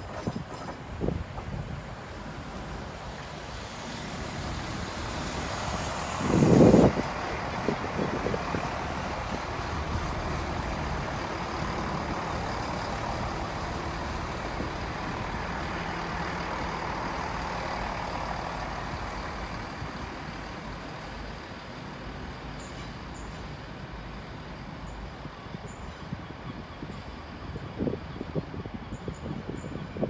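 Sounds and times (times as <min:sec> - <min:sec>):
diesel train pulling away: 0:00.0 - 0:30.0.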